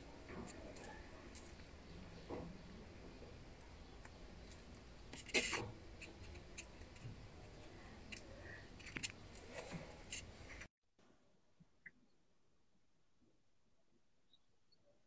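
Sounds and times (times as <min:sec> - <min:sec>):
small clicks and ticks: 0:08.1 - 0:10.7.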